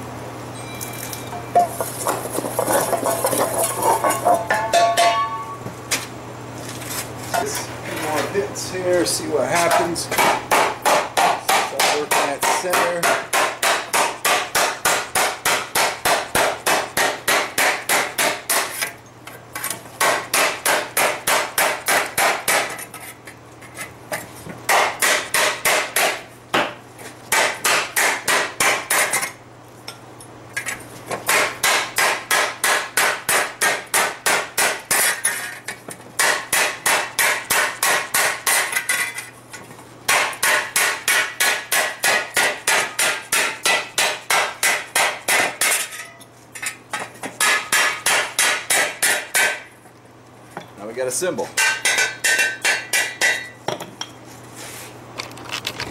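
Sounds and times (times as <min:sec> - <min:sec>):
hammer striking hot steel: 0:02.9 - 0:05.6, 0:09.6 - 0:18.9, 0:20.0 - 0:22.8, 0:24.7 - 0:26.7, 0:27.3 - 0:29.3, 0:31.3 - 0:35.4, 0:36.2 - 0:39.1, 0:40.1 - 0:46.3, 0:46.9 - 0:49.7, 0:51.6 - 0:53.8.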